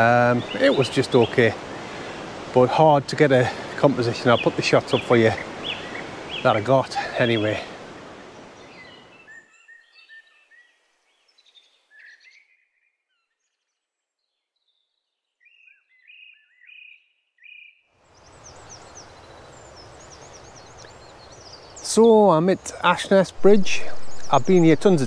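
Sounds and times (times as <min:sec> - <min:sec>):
steady rushing hiss: 0:00.0 - 0:09.2, 0:18.0 - 0:25.0
songbirds chirping: 0:00.0 - 0:25.0.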